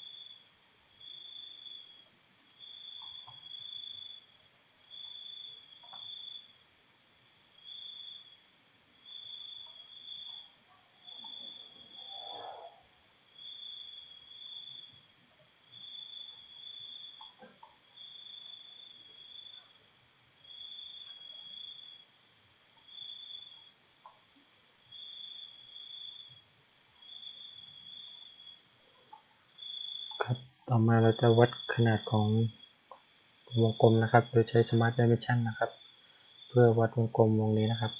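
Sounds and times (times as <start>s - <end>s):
steady high hiss: 0.0s - 37.9s
insects trilling in pulses: 9.0s - 15.1s, 24.9s - 32.8s, 33.4s - 37.9s.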